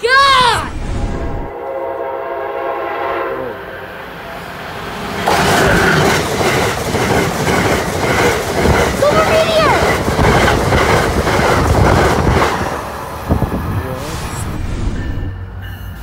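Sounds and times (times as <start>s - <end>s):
train rushing past: 0.1s - 16.0s
train horn: 1.5s - 4.2s.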